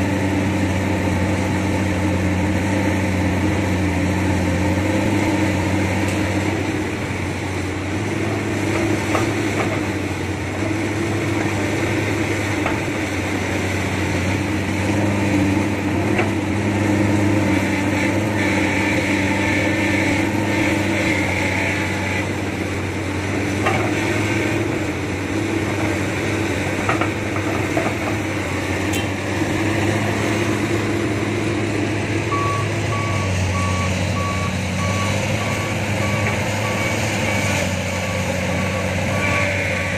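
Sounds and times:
diesel engines running: 0.0s - 39.9s
truck reversing beeper: 32.3s - 39.8s.

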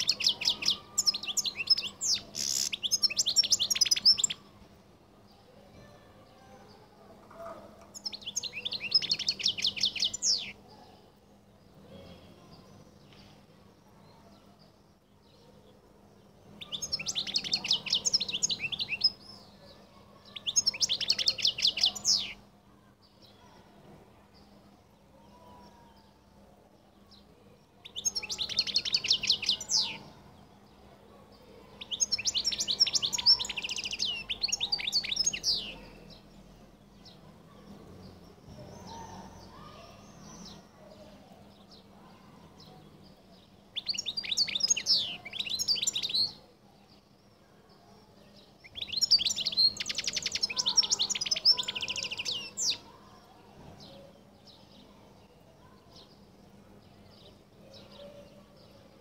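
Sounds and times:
faint bird chirps: 38.4s - 58.9s.

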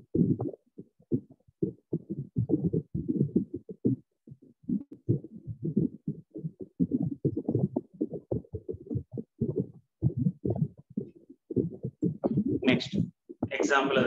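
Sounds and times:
muffled voice talking: 12.6s - 14.0s.

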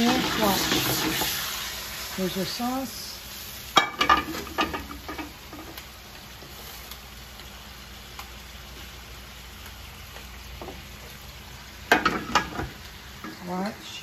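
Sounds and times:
sauce sizzling in pans: 0.0s - 14.0s
pans and utensils clinking: 3.8s - 5.7s, 11.9s - 13.4s.

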